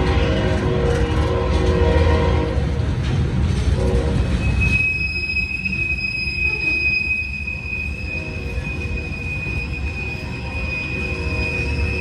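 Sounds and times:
freight cars rumbling: 0.0 - 12.0
train wheels squealing: 4.2 - 12.0.

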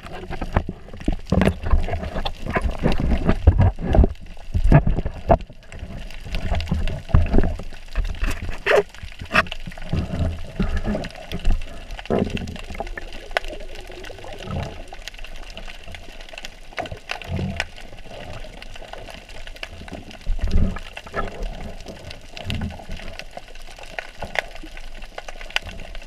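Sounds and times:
underwater crackle of clicks: 0.0 - 26.0.

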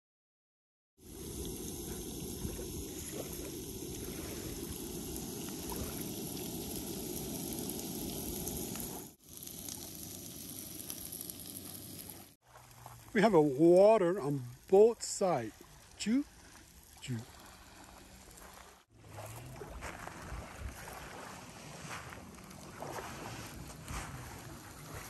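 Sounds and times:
potatoes sizzling in frying pan: 1.2 - 13.8.

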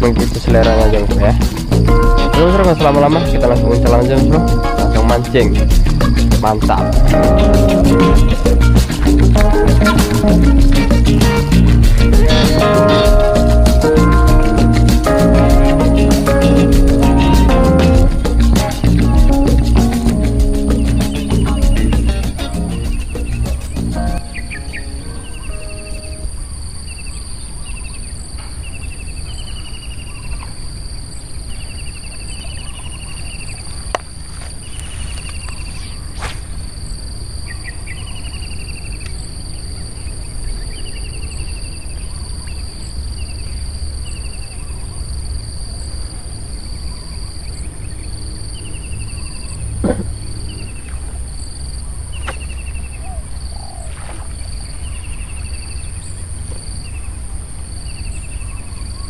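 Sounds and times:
high insect drone: 0.0 - 58.8.

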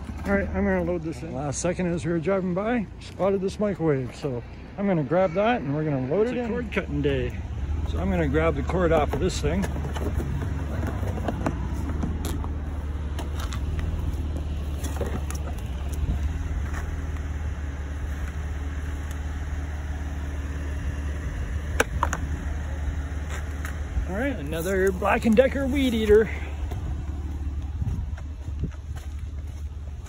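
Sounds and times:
vehicle engine rumbling: 0.0 - 30.0
sharp clicks and knocks: 21.7 - 22.3.

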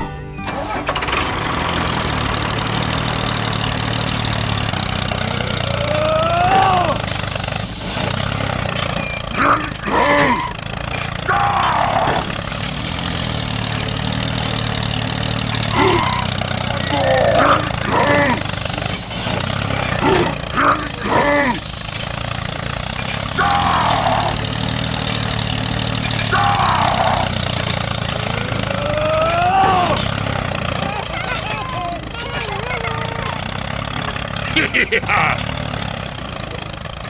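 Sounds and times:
tractor engine rumbling: 0.0 - 37.0
voice-like cries and grunts: 5.4 - 7.1, 9.3 - 10.5, 11.2 - 12.3, 16.7 - 18.5, 19.9 - 21.6, 23.3 - 24.4, 26.3 - 27.4, 28.6 - 30.0.

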